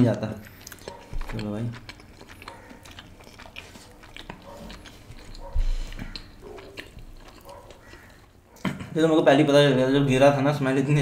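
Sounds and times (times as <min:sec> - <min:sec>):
biting and chewing food: 0:00.0 - 0:08.7
wet mouth clicks: 0:00.5 - 0:08.7.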